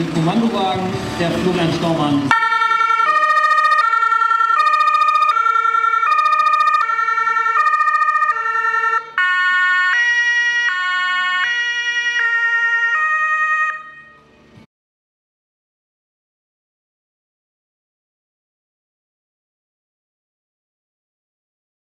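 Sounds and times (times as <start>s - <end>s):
two-tone siren: 2.3s - 14.5s.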